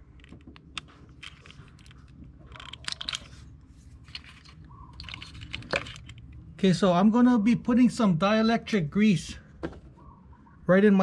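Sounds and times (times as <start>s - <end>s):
plastic clicks and scrapes: 0.2s - 6.4s.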